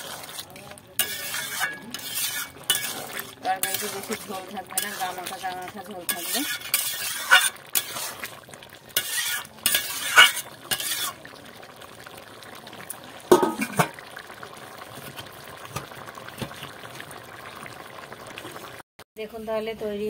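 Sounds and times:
metal ladle scraping a pot: 0.0s - 11.3s, 13.3s - 14.0s.

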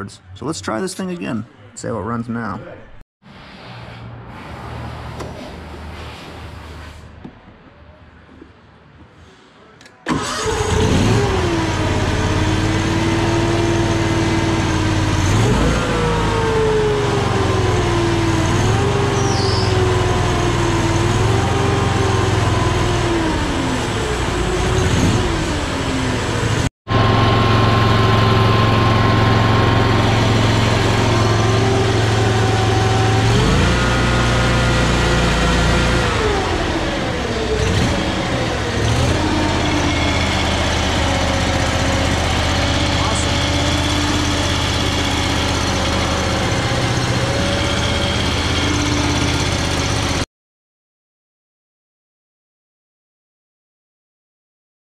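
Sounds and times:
mower engine revving: 10.1s - 50.2s.

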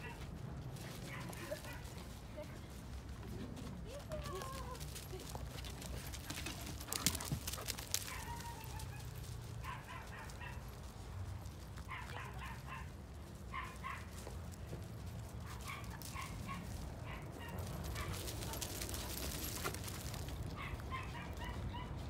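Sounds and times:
dog yipping: 8.0s - 10.6s, 11.9s - 12.9s, 13.5s - 14.1s, 15.4s - 18.6s, 20.6s - 22.0s.

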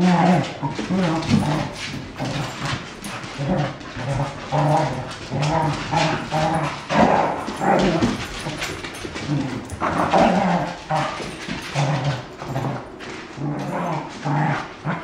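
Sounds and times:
dogs growling while play-fighting: 0.0s - 15.0s.

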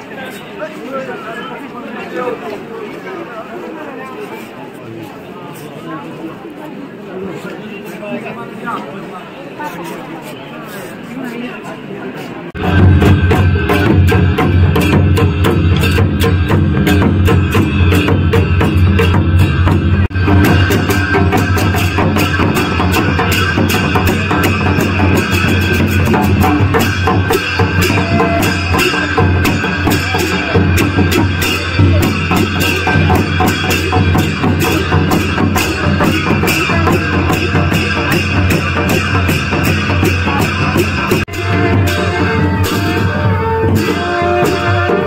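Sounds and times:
brass hand cymbals clashing: 12.6s - 45.0s
large drums beaten with sticks: 12.6s - 45.0s.

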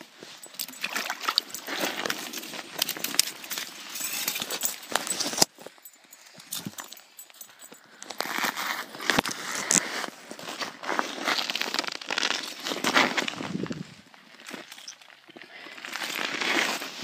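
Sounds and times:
footsteps crunching through snow: 8.2s - 14.4s.

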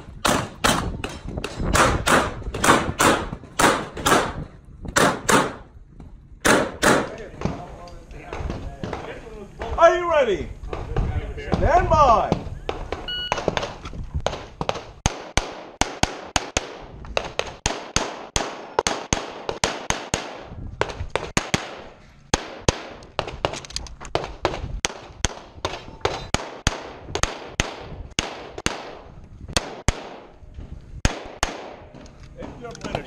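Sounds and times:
pistol shots firing rapidly: 1.7s - 4.4s, 5.0s - 5.6s, 6.4s - 7.1s, 14.3s - 23.3s, 24.2s - 29.0s, 29.6s - 30.3s, 31.0s - 31.8s.

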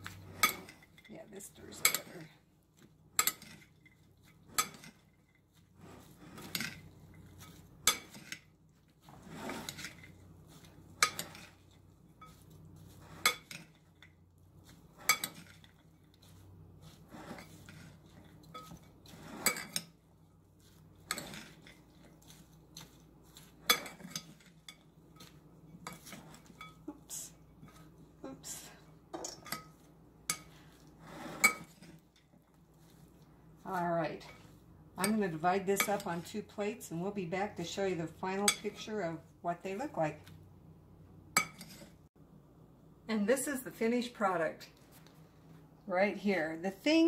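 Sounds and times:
vegetables rustling: 3.4s - 28.8s.

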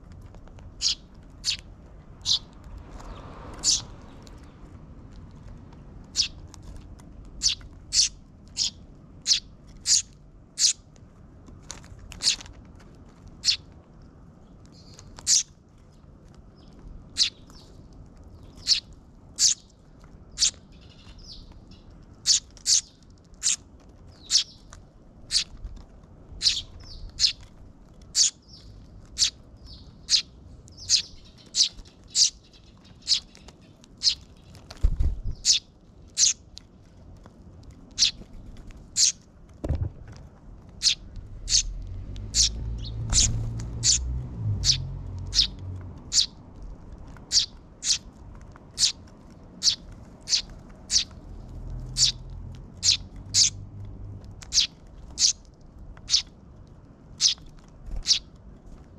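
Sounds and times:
sparrow chick begging chirps: 0.8s - 2.5s, 3.6s - 3.9s, 6.1s - 6.4s, 7.4s - 10.8s, 12.2s - 12.4s, 13.4s - 13.7s, 14.8s - 15.5s, 16.6s - 17.8s, 18.4s - 19.7s, 20.3s - 24.7s, 25.3s - 25.5s, 26.4s - 27.5s, 28.1s - 34.6s, 35.3s - 36.4s, 37.9s - 38.2s, 38.9s - 39.2s, 40.8s - 46.4s, 47.3s - 48.1s, 48.7s - 49.0s, 49.6s - 51.2s, 51.8s - 53.6s, 54.4s - 55.4s, 56.0s - 56.3s, 57.2s - 58.3s.

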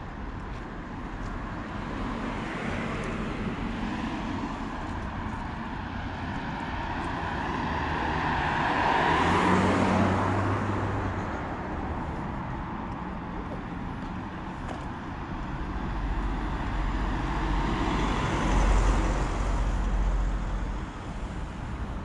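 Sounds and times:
car passing by: 1.8s - 12.2s, 15.7s - 21.6s.

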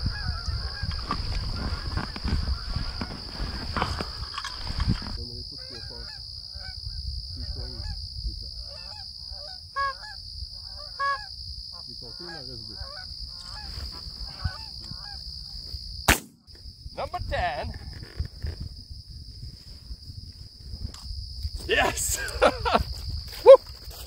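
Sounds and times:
geese honking: 0.0s - 4.3s, 5.6s - 6.8s, 8.6s - 15.3s
handling rustle: 0.9s - 5.2s.

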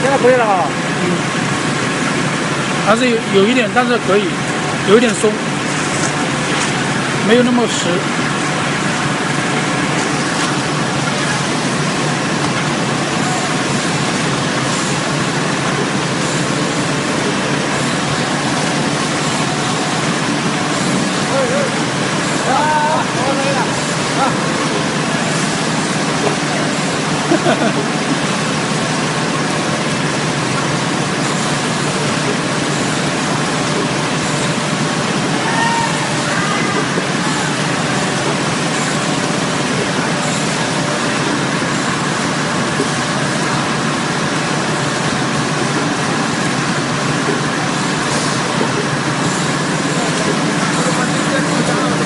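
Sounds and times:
packaging machine running: 36.0s - 52.0s.

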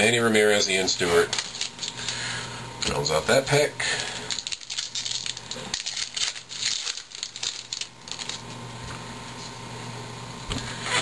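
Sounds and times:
cards being handled: 1.3s - 2.2s, 4.3s - 9.6s
wrapper tearing and crinkling: 1.3s - 2.2s, 4.2s - 8.6s.

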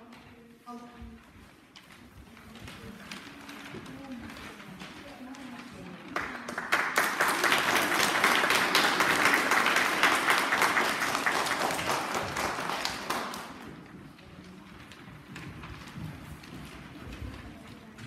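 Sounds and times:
audience applauding: 6.2s - 13.8s.

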